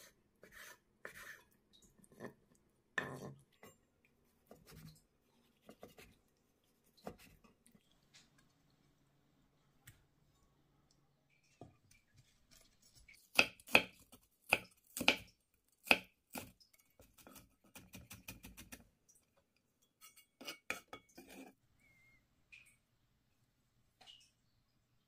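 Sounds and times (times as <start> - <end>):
knife chopping on wooden board: 13.3 - 16.5.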